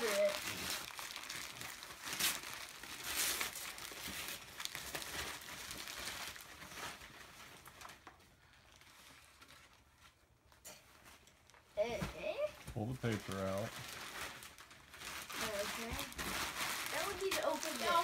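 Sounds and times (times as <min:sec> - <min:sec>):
wrapping paper ripping and rustling: 0:00.0 - 0:18.0.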